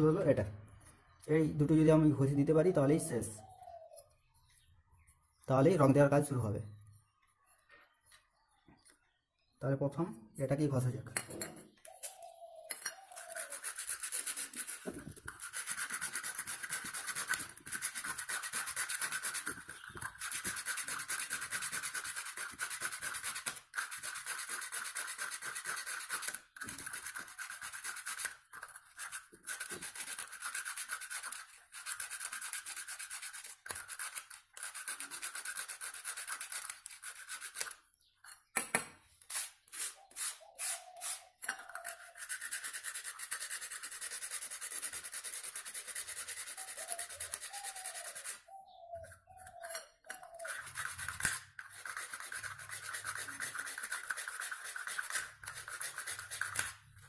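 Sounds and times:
sandpaper scratching on metal: 13.0s - 37.9s, 39.2s - 48.5s, 49.6s - 57.0s.

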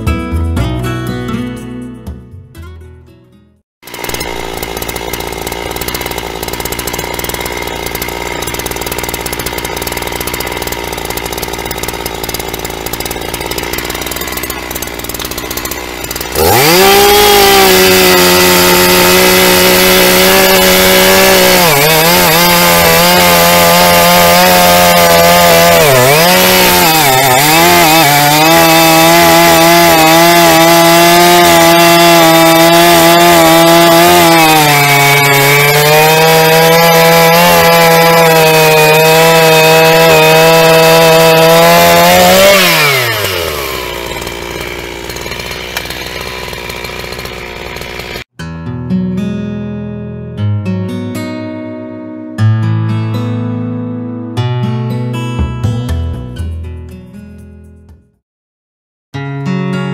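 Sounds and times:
chainsaw cutting log: 3.8s - 48.3s.

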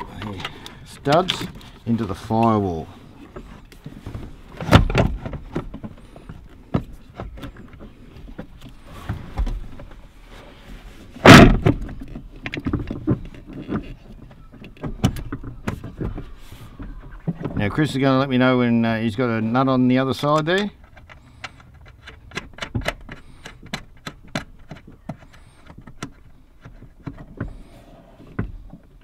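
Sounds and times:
heavy thumps: 11.2s - 13.3s
metal parts knocking and clunking: 20.3s - 27.7s.

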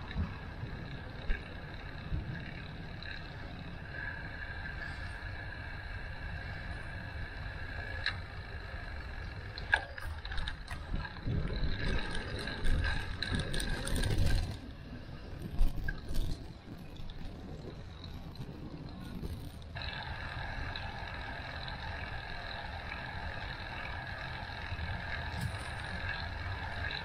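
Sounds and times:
bicycle clicks: 0.0s - 27.0s
bicycle tyres rumbling: 0.0s - 27.0s
bike rattling and clinking: 0.0s - 27.0s
high whine: 0.0s - 27.0s.

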